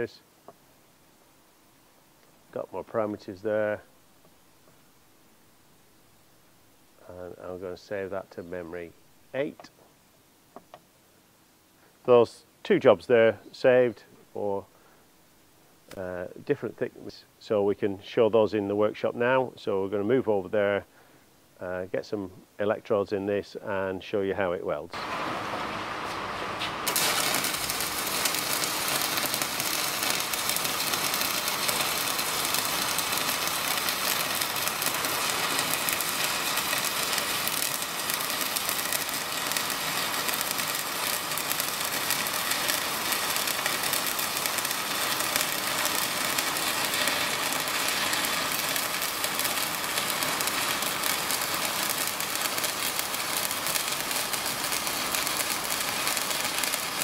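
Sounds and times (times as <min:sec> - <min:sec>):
welding arc crackling: 0:25.0 - 0:57.0.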